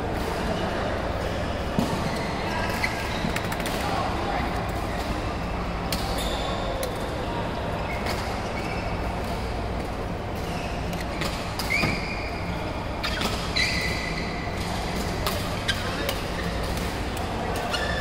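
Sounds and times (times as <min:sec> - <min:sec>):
shoes squeaking on court: 0:07.8 - 0:09.2, 0:10.4 - 0:14.4, 0:15.3 - 0:16.8.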